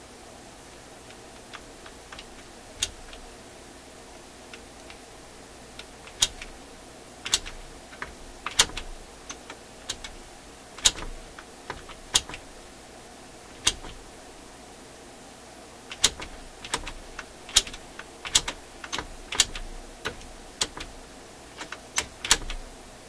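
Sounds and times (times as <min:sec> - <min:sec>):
metal levers clicking: 0:05.8 - 0:06.5, 0:07.2 - 0:10.2, 0:10.8 - 0:12.4, 0:13.6 - 0:14.0, 0:15.9 - 0:20.9, 0:21.6 - 0:22.6.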